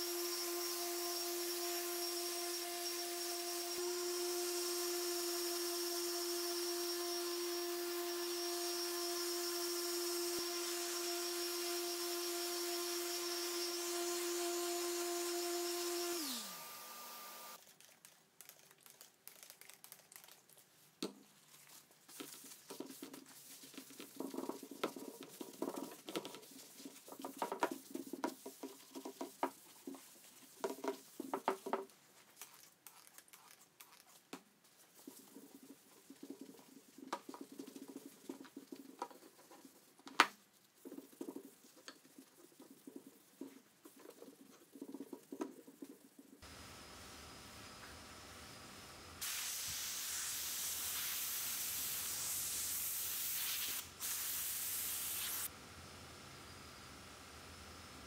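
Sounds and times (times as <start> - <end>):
scratching and rubbing: 17.6 - 46.4.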